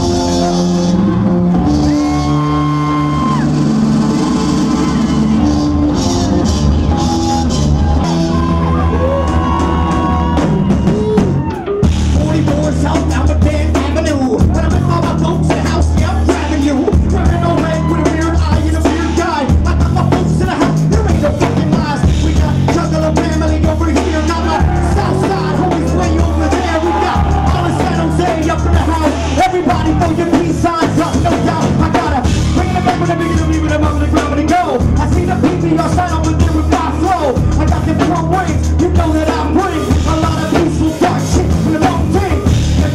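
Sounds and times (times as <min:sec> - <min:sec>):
rap-rock song through pa: 0:00.0 - 0:42.9
rapper shouting into microphone: 0:12.2 - 0:42.9.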